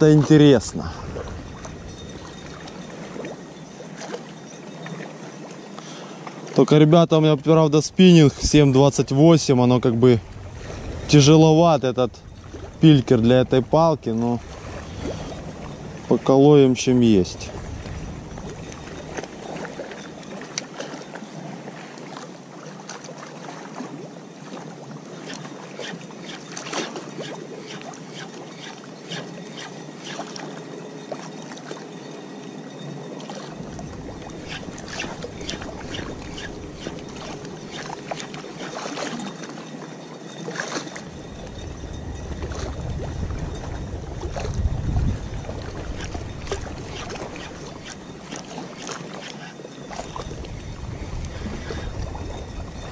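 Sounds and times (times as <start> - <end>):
wind on microphone: 0.0 - 3.4, 7.9 - 20.7, 33.5 - 39.5, 40.9 - 52.9
canal water moving: 0.0 - 52.9.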